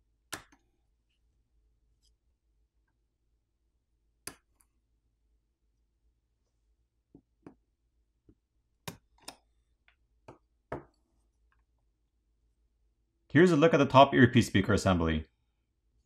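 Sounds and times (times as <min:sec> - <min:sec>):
small tools tapping a smartphone: 0:04.2 - 0:04.7, 0:08.3 - 0:11.7.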